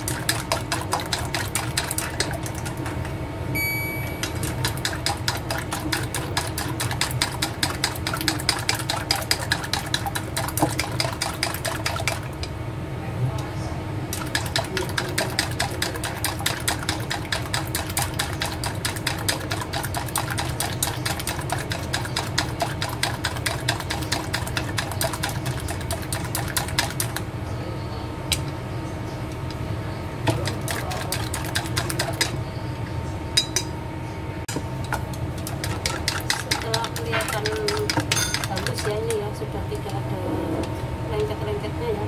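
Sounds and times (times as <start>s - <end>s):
chopsticks beating eggs in bowl: 0.0s - 3.2s, 4.2s - 12.6s, 14.1s - 27.3s, 30.2s - 32.4s, 34.5s - 40.0s
steady low hum: 0.0s - 42.0s.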